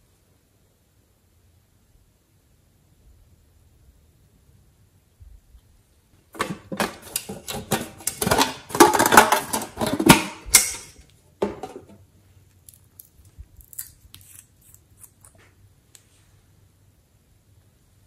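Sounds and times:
metal tin clicking and scraping: 6.3 - 11.9.

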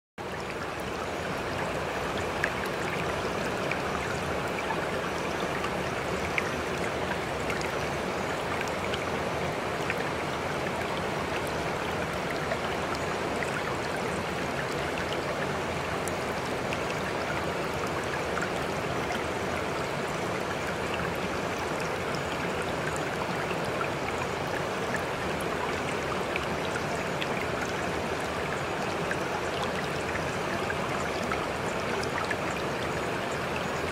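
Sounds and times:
running water: 0.2 - 33.9
small drip-like ticks: 0.2 - 33.9.

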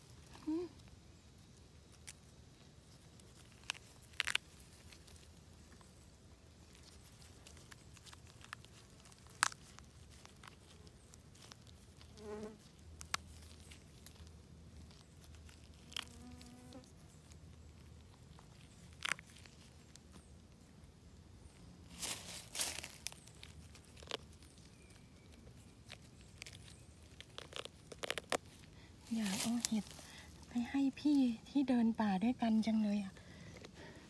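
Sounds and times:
small insects buzzing: 0.3 - 17.4.

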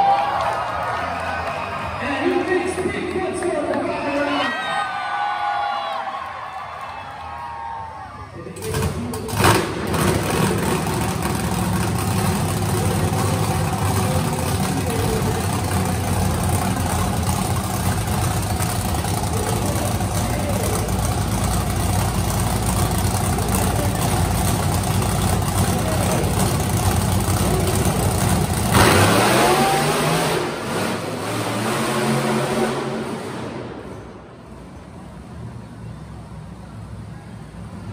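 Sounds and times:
monster truck engines revving: 7.1 - 37.9.

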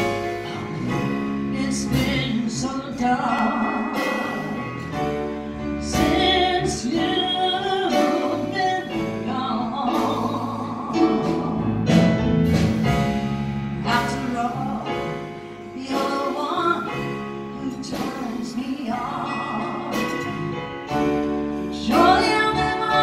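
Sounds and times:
instrumental accompaniment: 0.0 - 23.0
woman singing into microphone: 1.4 - 4.6, 5.8 - 11.8, 13.8 - 20.4, 21.7 - 23.0.

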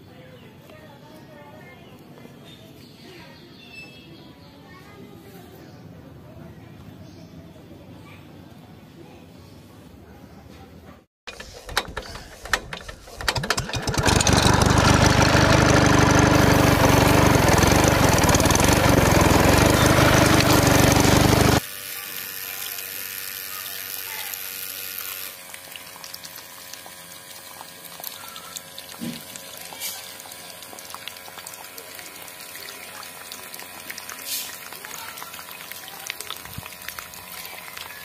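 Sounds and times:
clicks and rattles: 11.3 - 15.0
water pump motor whirring: 11.3 - 38.0
water gushing from pipe: 13.3 - 21.6, 24.4 - 38.0.

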